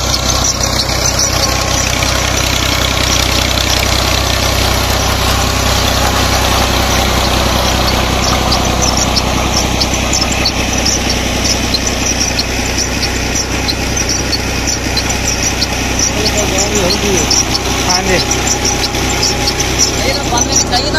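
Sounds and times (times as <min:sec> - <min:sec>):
tractor diesel engine running: 0:00.0 - 0:20.9.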